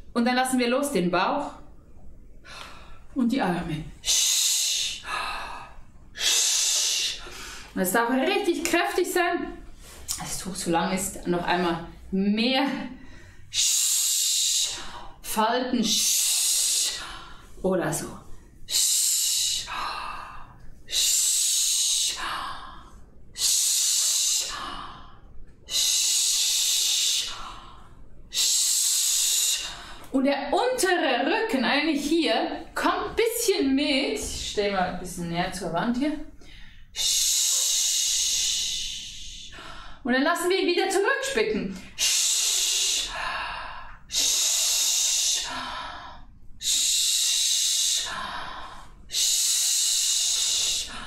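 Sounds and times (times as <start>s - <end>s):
woman hissing exhalations: 4.0s - 7.7s, 13.0s - 15.2s, 18.7s - 30.0s, 36.7s - 40.0s, 41.9s - 51.0s.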